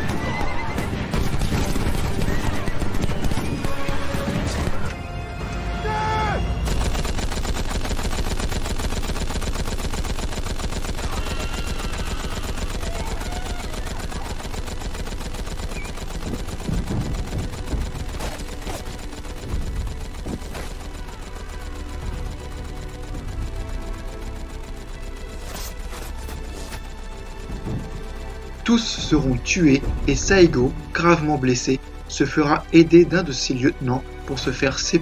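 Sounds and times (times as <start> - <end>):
machine-gun fire: 0.0 - 4.9, 6.6 - 26.2
rifle fire: 0.0 - 4.9, 6.6 - 25.9.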